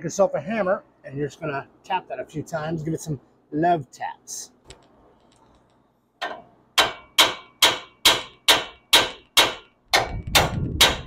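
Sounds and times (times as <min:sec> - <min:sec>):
hammer striking steel: 0:06.2 - 0:11.0.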